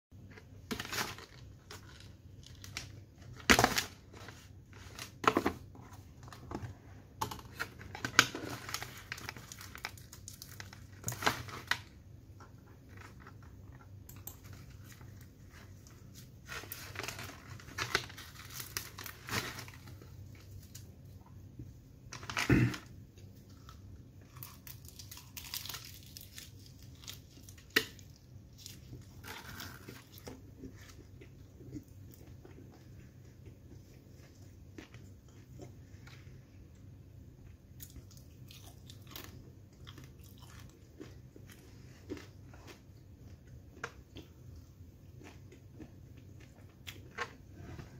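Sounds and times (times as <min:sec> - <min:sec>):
paper and foil crinkling: 0:00.6 - 0:05.6, 0:07.3 - 0:11.9, 0:14.4 - 0:20.9, 0:24.4 - 0:31.0
pastry crackling and tearing: 0:24.2 - 0:31.4
person chewing: 0:37.7 - 0:47.9.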